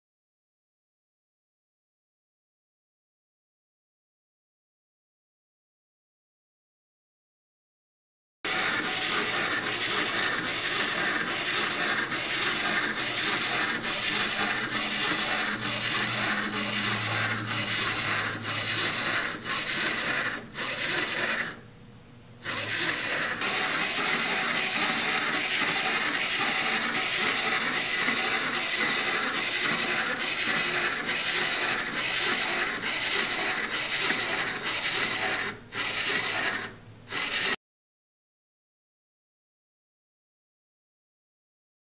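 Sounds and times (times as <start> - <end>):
clockwork ticking: 8.5 - 21.5, 22.5 - 37.5
wind-up toy motor whirring: 8.5 - 21.6, 22.4 - 37.6.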